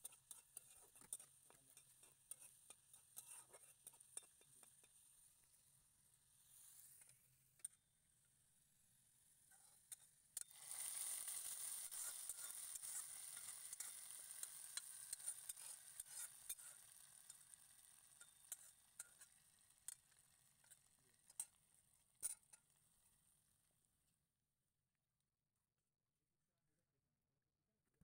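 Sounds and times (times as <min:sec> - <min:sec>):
hot oil sizzling: 0:00.0 - 0:05.2, 0:10.4 - 0:21.6.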